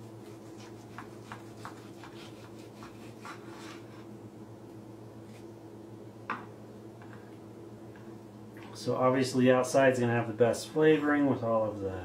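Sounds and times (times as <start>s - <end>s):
knife slicing meat on wooden board: 0.2s - 3.8s.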